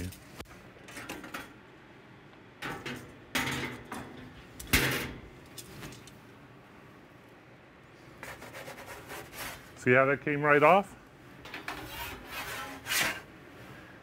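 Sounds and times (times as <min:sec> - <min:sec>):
metal utensils scraping and clanking: 0:11.5 - 0:13.3.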